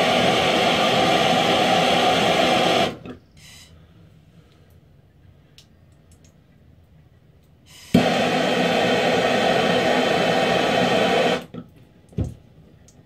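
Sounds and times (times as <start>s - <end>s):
propane torch hissing: 0.0s - 3.7s, 7.7s - 11.5s.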